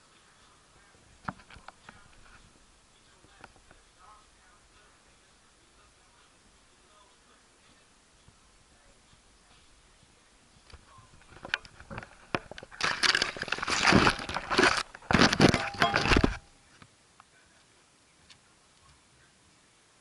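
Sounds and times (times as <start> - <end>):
dense crackling rustle: 9.0 - 16.9
leafy branches rustling and scraping: 10.6 - 16.8.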